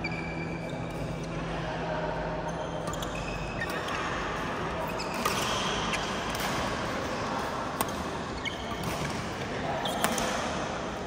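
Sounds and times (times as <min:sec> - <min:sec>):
din of play in a hall: 0:00.0 - 0:11.0
rackets hitting shuttlecock: 0:05.1 - 0:10.8.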